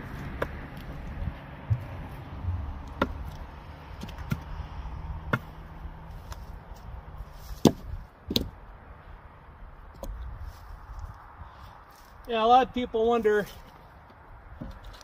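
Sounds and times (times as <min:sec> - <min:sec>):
hand tool chopping wood: 0:00.0 - 0:04.6, 0:05.2 - 0:05.6, 0:07.5 - 0:08.6.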